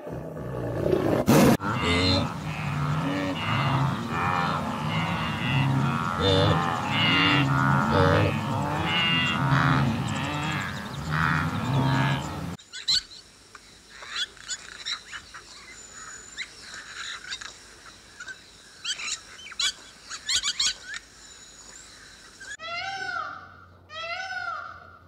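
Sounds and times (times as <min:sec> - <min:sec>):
wildebeest low calls: 0:01.6 - 0:12.6.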